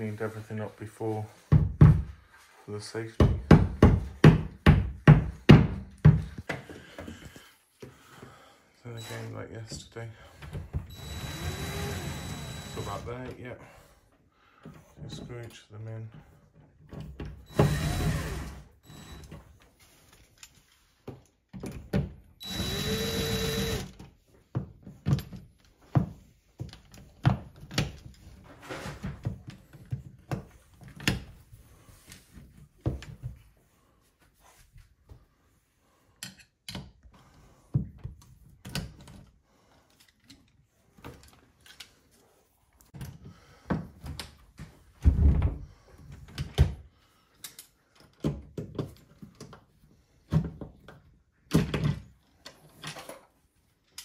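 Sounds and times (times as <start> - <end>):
drill driving screw: 9.0 - 9.3, 10.9 - 13.1, 17.5 - 19.3, 22.4 - 24.0.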